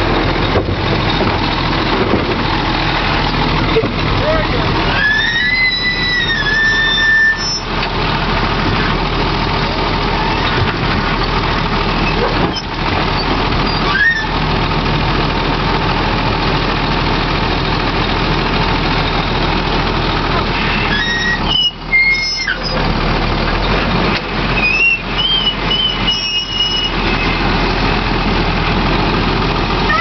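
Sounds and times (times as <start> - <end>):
garbage truck idling: 0.0 - 30.0
grabber arm squeaking: 4.9 - 7.7, 20.7 - 22.8.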